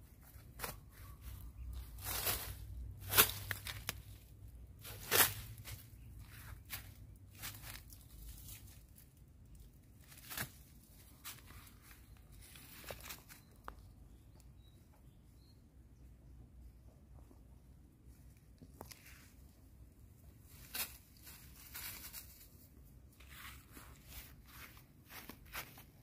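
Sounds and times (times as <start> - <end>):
crunching of dry leaves: 0.0 - 13.8, 20.2 - 26.0
steps on dry ground: 23.2 - 26.0.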